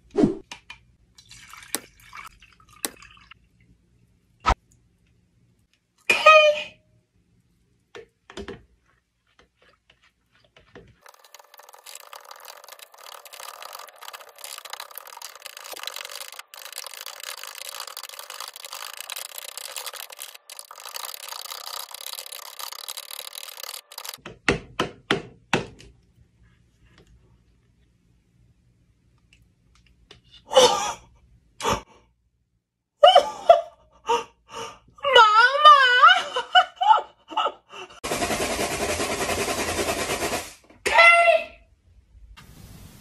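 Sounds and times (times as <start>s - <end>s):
metal rod scraping plastic jar: 11.0s - 24.2s.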